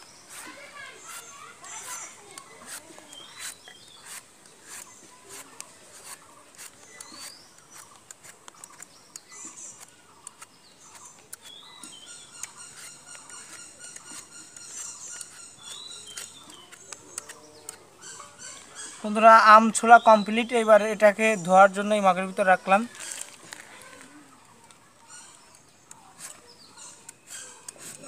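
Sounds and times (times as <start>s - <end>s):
peeler scraping mango skin: 0.0s - 19.0s, 25.1s - 28.0s
birds chirping: 0.0s - 28.0s.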